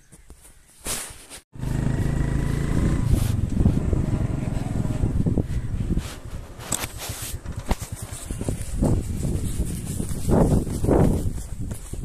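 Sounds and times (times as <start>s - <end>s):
motorcycle engine running: 1.6s - 11.4s.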